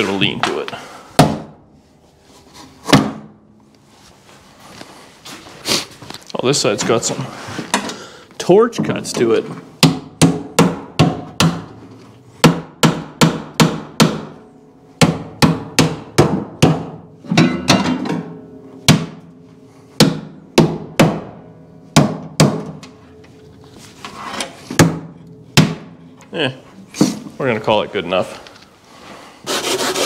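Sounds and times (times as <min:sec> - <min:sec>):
hammer striking sheet metal: 0:09.8 - 0:11.7, 0:12.4 - 0:23.3, 0:24.6 - 0:26.2.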